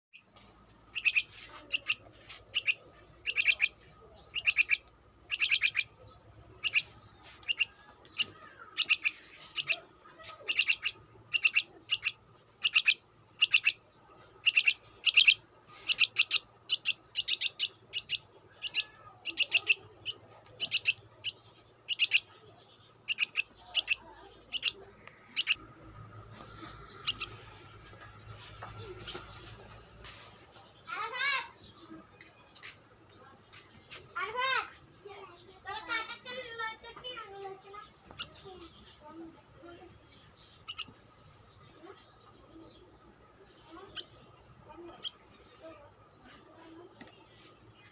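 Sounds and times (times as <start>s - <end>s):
young myna chirping: 0.1s - 25.6s, 26.4s - 29.7s, 40.1s - 41.1s.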